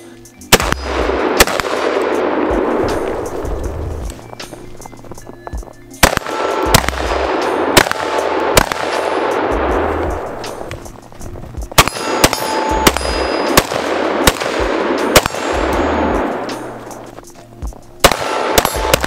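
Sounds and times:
pistol shots with echo: 0.5s - 5.1s, 6.0s - 10.8s, 11.7s - 17.0s, 18.0s - 19.0s
steel targets clanging: 11.8s - 14.2s.

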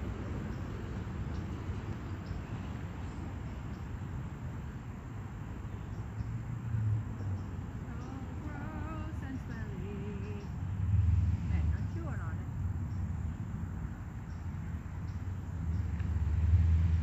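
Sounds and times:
road traffic rumble: 0.0s - 17.0s
vehicle passing: 0.0s - 17.0s
faint high ticks: 3.4s - 3.9s, 7.2s - 10.6s, 14.2s - 16.2s.

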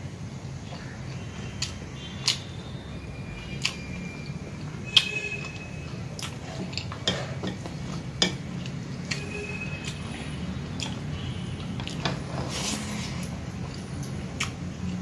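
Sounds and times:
wet chewing: 3.4s - 4.3s, 4.9s - 10.1s, 10.7s - 12.2s.

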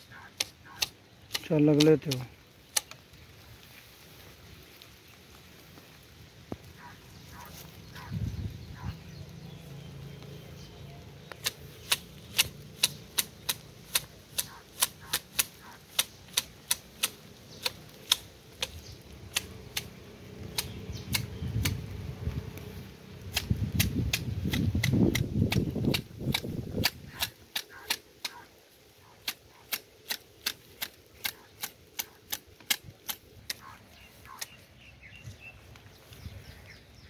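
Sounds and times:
low rustling foliage: 0.0s - 37.0s
hedge shears snipping: 0.1s - 3.1s, 11.2s - 21.9s, 22.5s - 34.7s.

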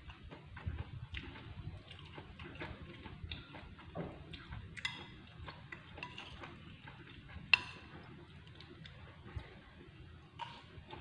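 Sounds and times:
metal spoon scraping ceramic bowl: 6.0s - 6.5s, 10.4s - 10.8s.

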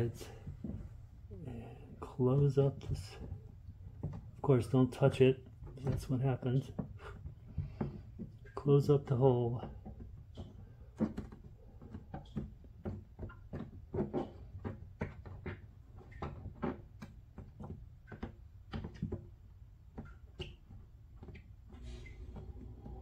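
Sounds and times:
fingers knocking on hollow plastic: 9.6s - 21.5s
low steady hum: 21.7s - 23.0s.

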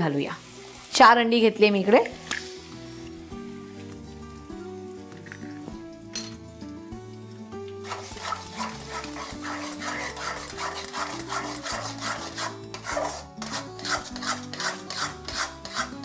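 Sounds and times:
spatula scraping metal pan: 7.8s - 16.0s.

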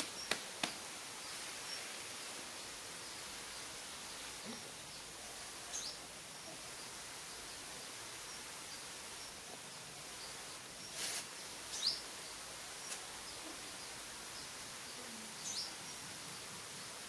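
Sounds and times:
small birds chirping: 0.0s - 17.0s
steady background hiss: 0.0s - 17.0s
brief rustle: 11.0s - 11.3s.

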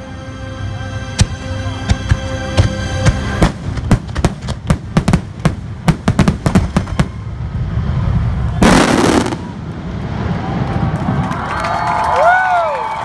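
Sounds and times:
fireworks bursting bangs: 2.0s - 11.2s
fireworks hissing crackle: 3.5s - 11.3s.

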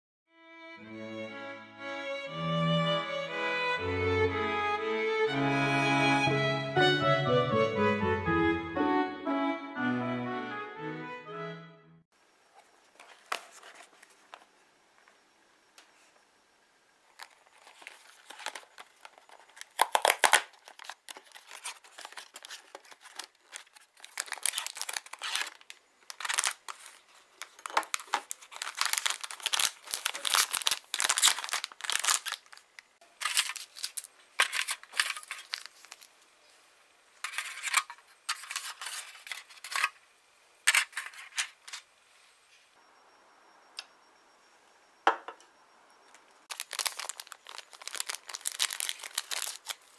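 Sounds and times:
plastic crinkling: 17.1s - 36.2s, 46.5s - 49.9s
cardboard tearing: 17.8s - 26.9s, 27.6s - 32.5s, 46.5s - 49.9s.

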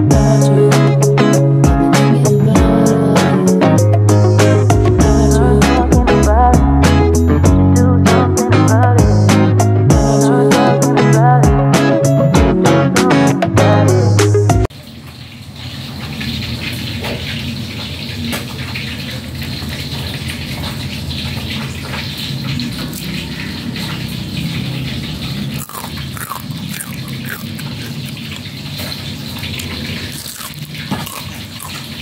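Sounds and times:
fried fritter crackling when torn: 19.0s - 32.0s.

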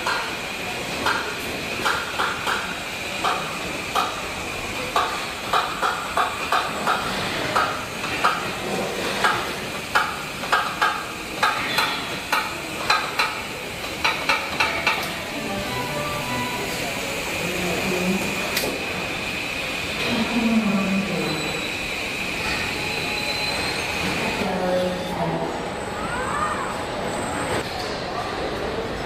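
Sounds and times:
steady high hum: 15.2s - 18.6s.

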